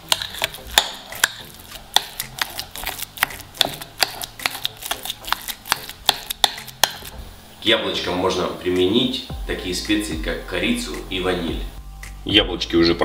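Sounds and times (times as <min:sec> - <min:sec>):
soft scraping of mixture: 0:00.0 - 0:07.2.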